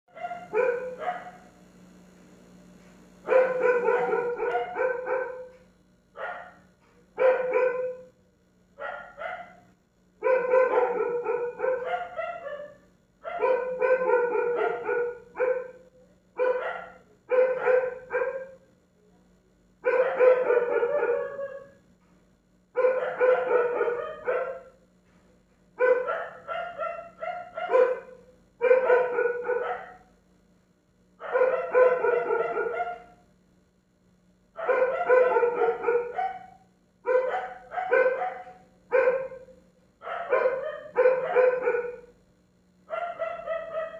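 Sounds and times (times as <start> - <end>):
dog barking: 0.1 - 1.5, 3.3 - 5.6, 6.2 - 8.1, 8.8 - 18.7, 19.8 - 21.8, 22.8 - 24.8, 25.8 - 30.1, 31.2 - 33.2, 34.6 - 42.1, 42.9 - 43.9
steady low hum: 0.1 - 43.9.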